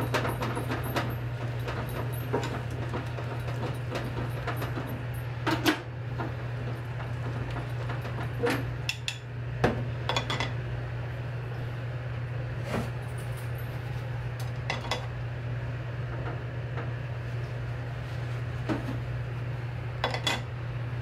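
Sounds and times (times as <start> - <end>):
dishes and utensils clinking: 10.1 - 10.5, 20.0 - 20.5.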